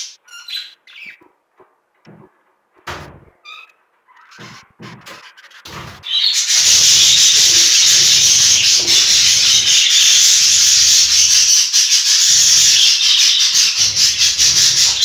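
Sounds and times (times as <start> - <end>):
low dull bumps: 1.6 - 3.4, 4.3 - 6.2
rubbing on microphone: 4.2 - 10.4.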